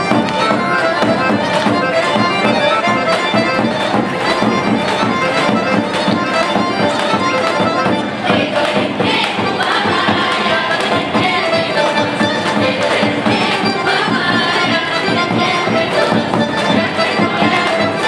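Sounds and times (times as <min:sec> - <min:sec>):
folk dance tune on accordion: 0:00.0 - 0:18.0.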